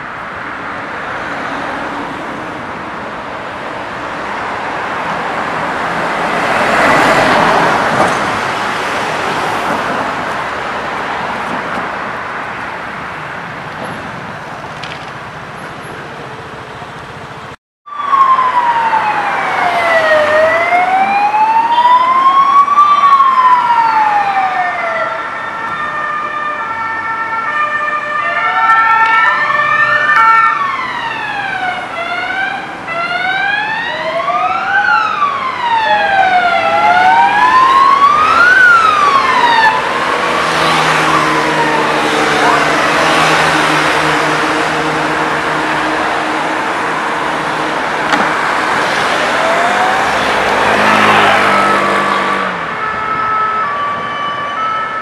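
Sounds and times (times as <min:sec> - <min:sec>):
wailing sirens: 0:00.0 - 0:12.7, 0:17.9 - 0:55.0
street traffic: 0:00.0 - 0:55.0
two-tone hi-lo siren: 0:17.9 - 0:48.0, 0:48.8 - 0:55.0
vehicle passing: 0:35.6 - 0:53.0.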